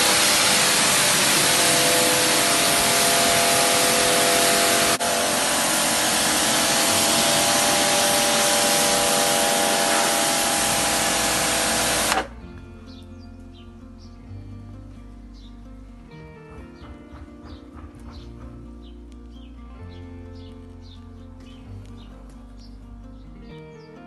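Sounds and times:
pressure washer spray hiss: 0.0 - 12.3
pump motor whine: 0.0 - 12.4.

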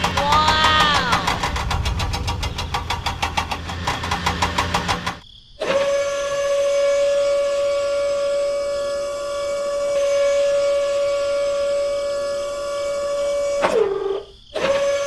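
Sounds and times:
low hum: 0.0 - 5.2.

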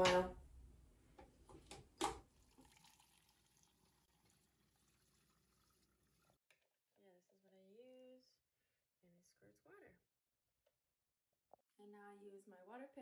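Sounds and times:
water stream filling plastic reservoir: 2.0 - 6.4.

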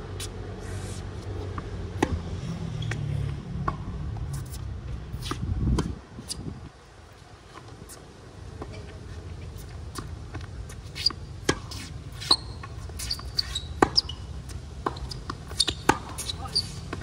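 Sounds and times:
tennis ball hit by rackets: 1.5 - 2.3, 11.0 - 17.0.

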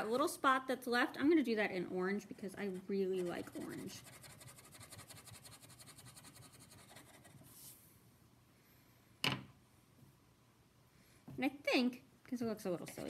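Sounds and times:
crayon scribbling on paper: 2.6 - 7.5.

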